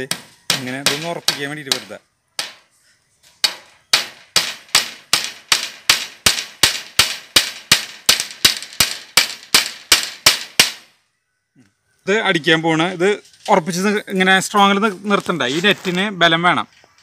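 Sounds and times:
hammer driving nails into wood: 0:00.0 - 0:02.6, 0:03.4 - 0:10.9.

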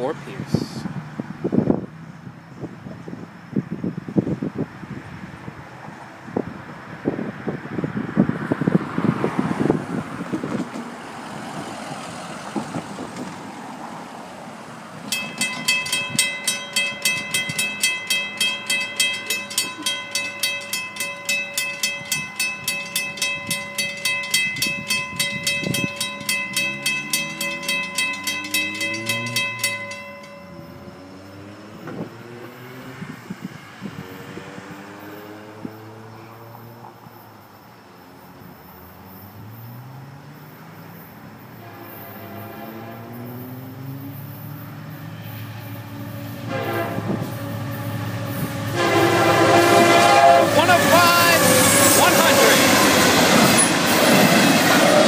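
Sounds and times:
freight train approaching: 0:04.7 - 0:55.0
crossing bell ringing: 0:15.0 - 0:31.8, 0:41.6 - 0:55.0.

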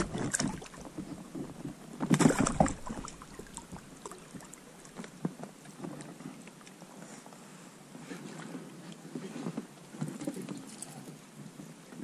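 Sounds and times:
water splashes: 0:00.0 - 0:06.8
quiet water noise: 0:00.0 - 0:12.0.

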